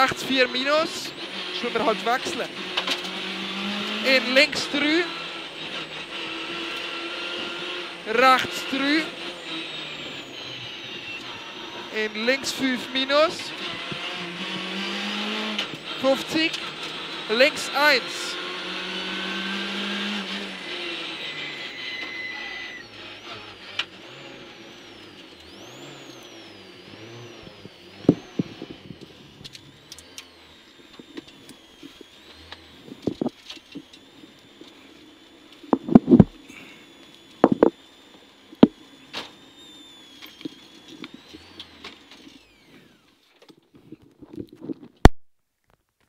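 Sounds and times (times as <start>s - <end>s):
car engine from inside cabin: 0.0s - 43.3s
faint high whine: 21.4s - 23.0s.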